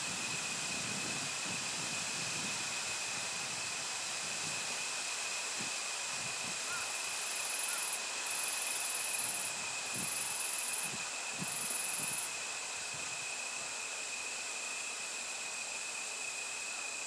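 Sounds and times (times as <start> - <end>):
insects buzzing trills: 6.2 - 17.0.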